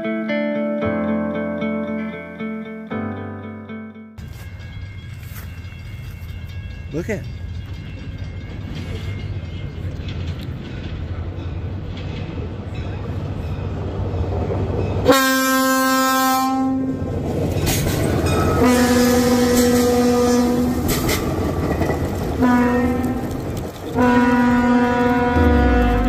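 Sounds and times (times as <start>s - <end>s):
moving train rumble: 4.2s - 26.0s
train horn blasting: 15.1s - 17.0s, 18.6s - 20.8s, 22.4s - 23.3s, 24.0s - 26.0s.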